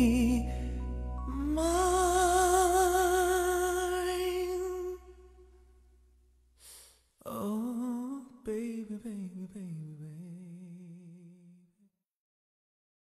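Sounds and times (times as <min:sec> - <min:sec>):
song backing music: 0:00.0 - 0:05.3.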